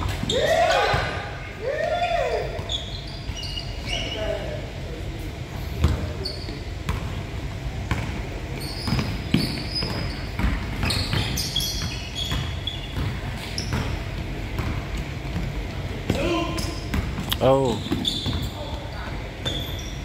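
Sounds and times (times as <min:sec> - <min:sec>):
sneakers squeaking: 0:00.0 - 0:20.0.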